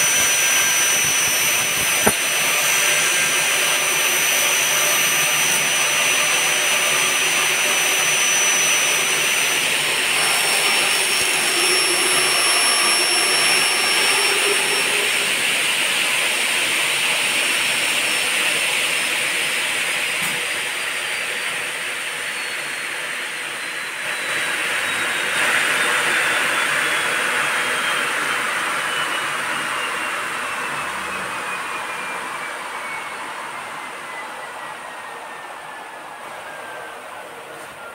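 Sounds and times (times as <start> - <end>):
circular saw cutting aluminium: 0.0 - 19.0
high machine whine: 0.0 - 37.9.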